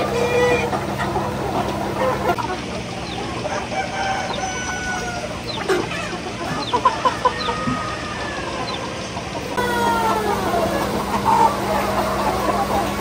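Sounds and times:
chickens clucking: 0.0s - 13.0s
rooster crowing: 3.4s - 5.5s, 6.9s - 8.9s.

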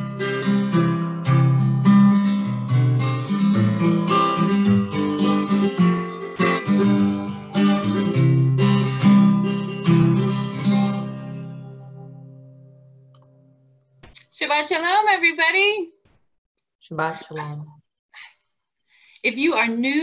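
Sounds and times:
acoustic guitar: 0.0s - 14.2s.

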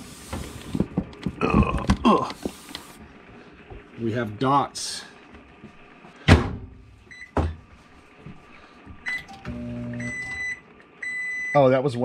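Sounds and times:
microwave humming: 0.0s - 12.0s
microwave keypad beeps: 7.1s - 7.4s, 9.1s - 11.7s.

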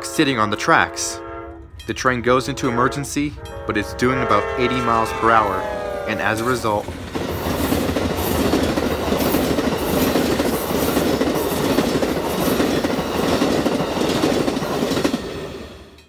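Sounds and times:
train wheels rumbling on rails: 0.0s - 16.0s
clickety-clack of rail joints: 6.4s - 16.0s.

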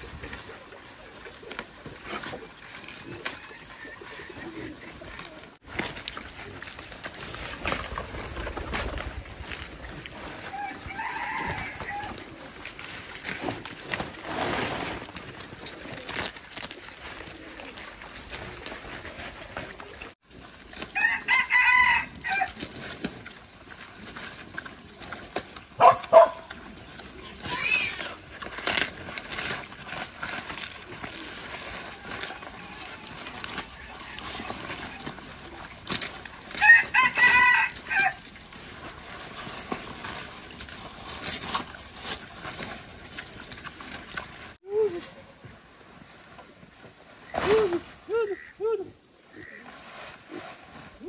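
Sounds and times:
pig chewing leaves: 0.0s - 47.3s
rooster crowing: 10.4s - 12.2s, 20.9s - 22.6s, 36.6s - 38.2s.

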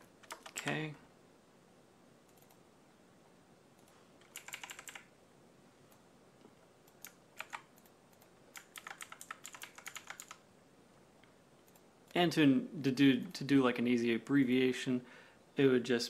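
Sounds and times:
faint keyboard typing: 0.0s - 1.0s, 2.2s - 2.6s, 3.8s - 5.1s, 5.8s - 10.4s, 11.2s - 12.3s.

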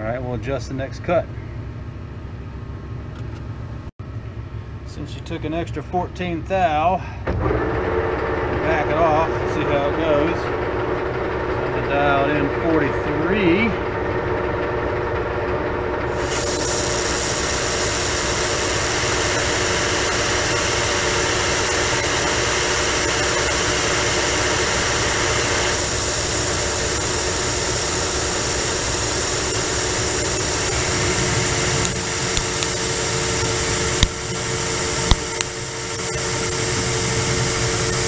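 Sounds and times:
metal lathe running: 7.4s - 38.0s
lathe tool cutting metal: 7.5s - 38.0s
sharp ticks: 31.8s - 32.9s, 34.0s - 34.4s, 35.0s - 35.6s.

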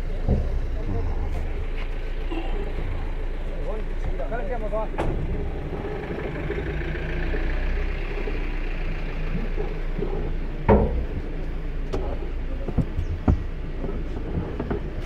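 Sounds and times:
wind rumble: 9.2s - 15.0s.

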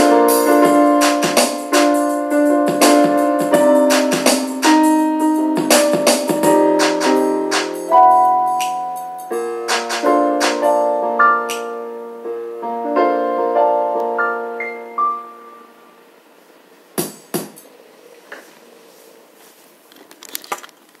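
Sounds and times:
piano chords ringing: 0.0s - 16.2s.

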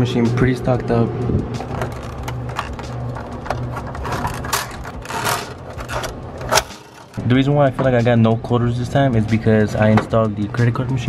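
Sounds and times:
steady low hum: 0.0s - 10.4s
metal can racks clicking and rattling: 1.6s - 7.2s.

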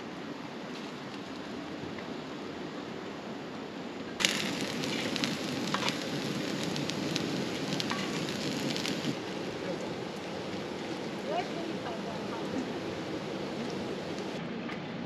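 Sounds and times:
steady background hiss: 0.0s - 14.5s
food sizzling in frying pan: 4.2s - 14.4s.

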